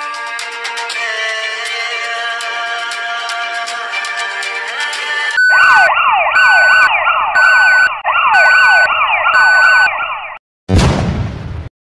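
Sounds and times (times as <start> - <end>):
high electronic beep: 5.4 - 10.0
sudden bang: 10.7 - 11.7.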